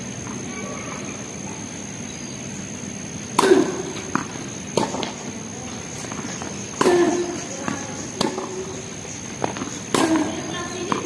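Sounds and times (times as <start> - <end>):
tennis ball struck by rackets: 3.2 - 11.0.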